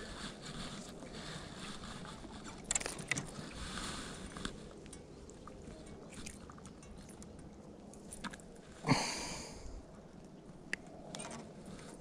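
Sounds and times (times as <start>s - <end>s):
faint tackle clicks: 0.5s - 8.7s.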